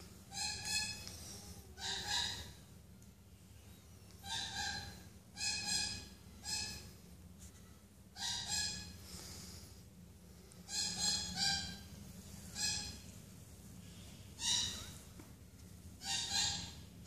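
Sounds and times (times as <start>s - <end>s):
parrot chick calling: 0.3s - 1.2s, 1.8s - 2.6s, 4.2s - 6.8s, 8.2s - 9.0s, 10.7s - 11.9s, 12.5s - 13.0s, 16.0s - 16.8s.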